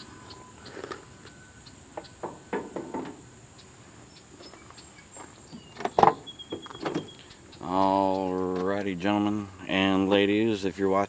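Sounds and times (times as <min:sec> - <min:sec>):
light knocks: 0:02.0 - 0:03.2
soft footsteps: 0:03.8 - 0:07.3
truck door latch clack: 0:05.8 - 0:07.2.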